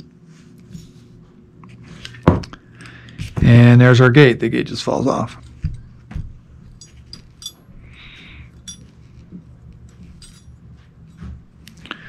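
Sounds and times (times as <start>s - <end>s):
metal parts clicking and clinking: 6.7s - 7.6s, 8.5s - 8.9s, 9.8s - 10.6s.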